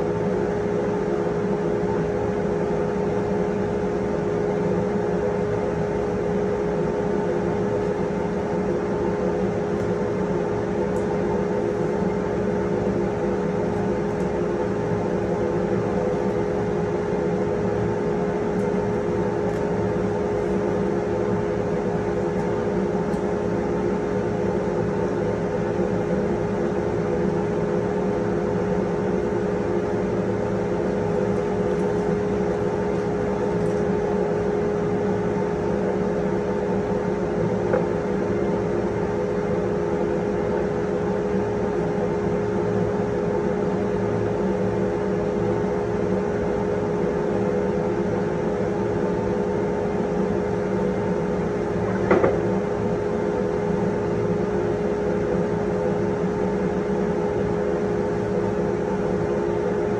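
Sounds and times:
machine motor humming: 51.2 - 54.2.

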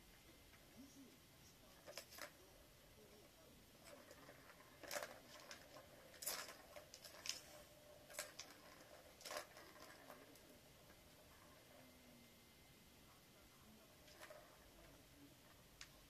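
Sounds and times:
plastic cat toy rattling: 1.8 - 2.5, 3.7 - 11.8, 14.0 - 16.0.

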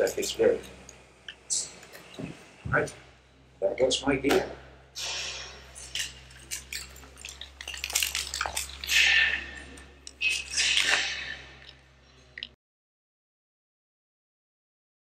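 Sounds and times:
rustling: 5.0 - 11.8
metal hardware clinking: 5.7 - 8.9.

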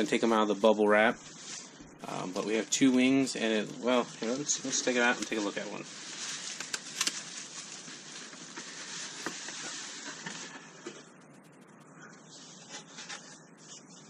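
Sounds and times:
bubble wrap rustling: 0.0 - 11.2.

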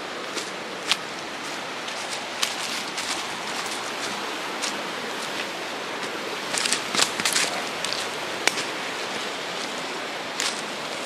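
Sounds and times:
footsteps crunching dry leaves: 0.0 - 11.0
river rapids rushing: 0.0 - 11.0
twigs snapping: 6.5 - 8.7.

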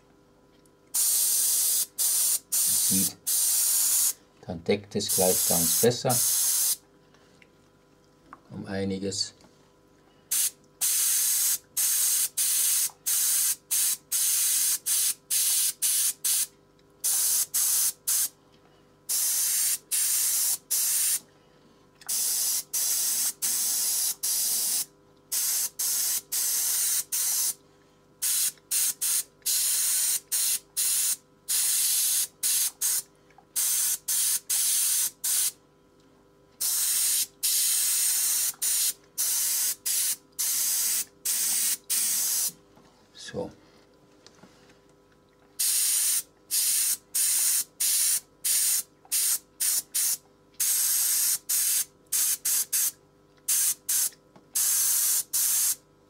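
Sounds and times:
faint steady hum: 0.0 - 49.6
airbrush spraying hiss: 1.0 - 4.2, 5.1 - 6.8, 10.3 - 18.3, 19.1 - 21.2, 22.1 - 27.6, 28.2 - 33.0, 33.6 - 35.6, 36.6 - 42.5, 45.6 - 52.9, 53.5 - 55.8.

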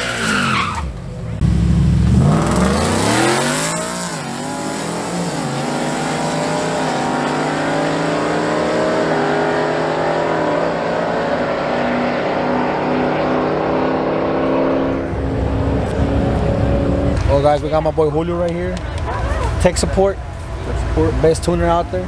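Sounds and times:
truck engine accelerating at full throttle: 1.0 - 17.9.

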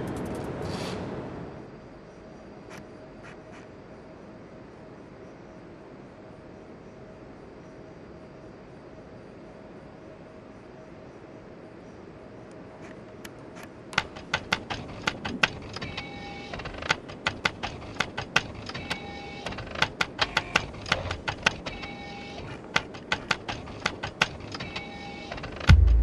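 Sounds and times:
rapid sharp clicks: 13.2 - 26.0.

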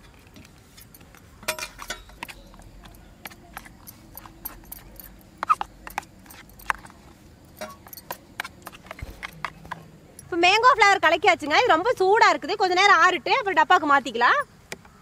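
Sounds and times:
spoon scraping metal tray: 1.5 - 7.0.

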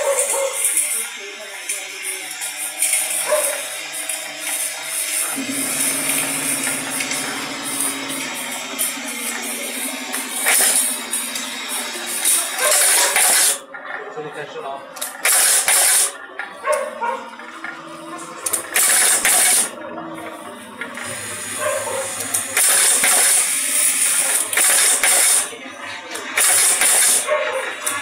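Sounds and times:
low steady machine hum: 5.3 - 12.2.

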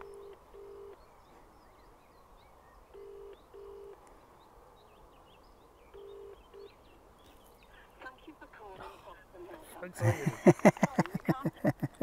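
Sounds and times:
phone ringback tone: 0.0 - 1.0, 2.9 - 4.0, 6.0 - 6.7.

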